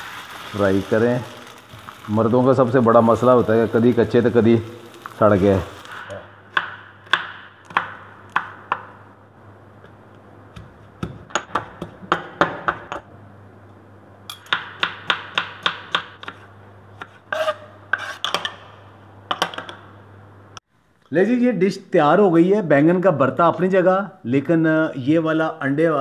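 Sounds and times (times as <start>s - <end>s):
knife chopping on wooden board: 6.5s - 8.9s, 10.5s - 12.9s.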